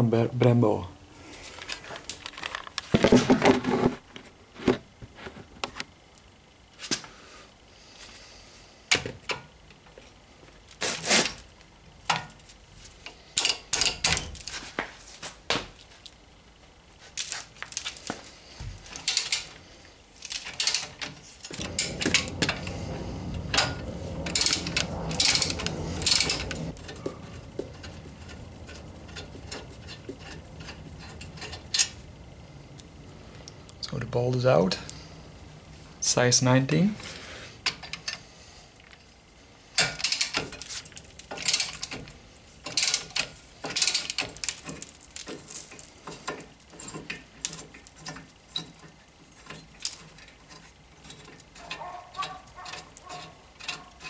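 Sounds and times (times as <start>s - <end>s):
metal clattering: 20.3s - 32.6s.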